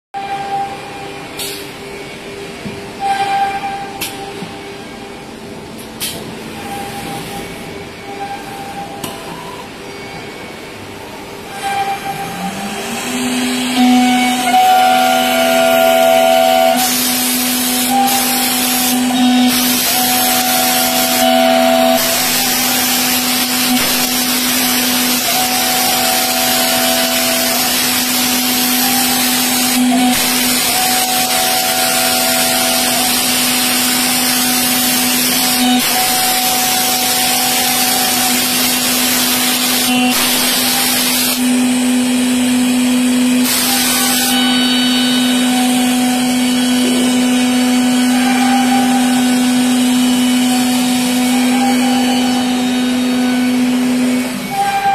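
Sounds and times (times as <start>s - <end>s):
router spindle whining: 11.7s - 54.9s
hiss of wood cutting: 12.4s - 54.9s.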